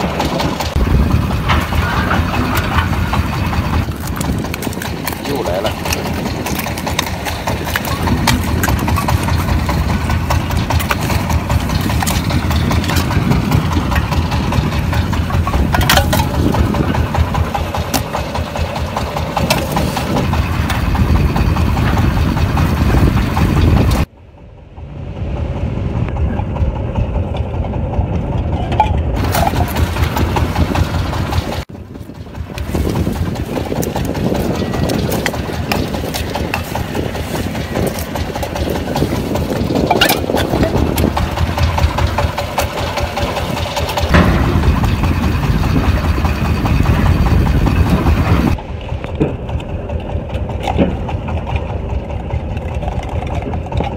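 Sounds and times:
boat engine idling: 0.0 - 53.9
clicks and knocks of traps: 1.3 - 20.9.

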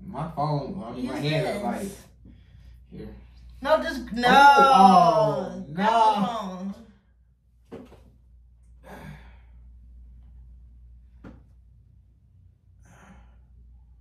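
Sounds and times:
low steady hum: 0.0 - 14.0
person sighing: 8.8 - 9.5.

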